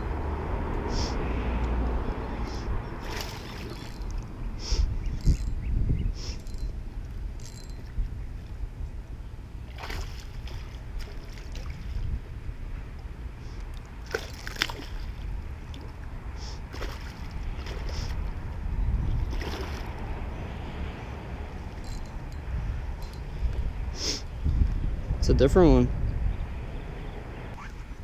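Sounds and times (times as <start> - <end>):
steady low rumble: 0.0 - 28.0
fish splashing at surface: 3.0 - 4.2.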